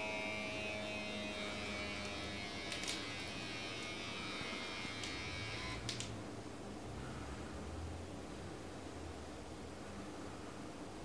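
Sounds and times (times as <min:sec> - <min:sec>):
small electric pump buzzing: 0:00.0 - 0:06.1.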